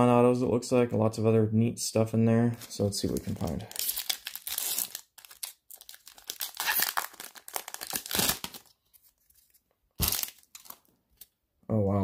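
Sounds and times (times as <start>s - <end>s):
wrapper crinkling and tearing: 3.1s - 11.3s.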